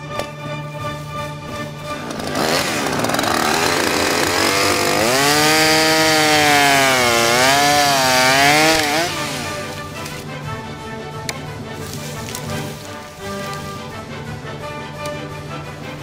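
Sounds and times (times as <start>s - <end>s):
chainsaw cutting through tree trunk: 1.8s - 10.2s.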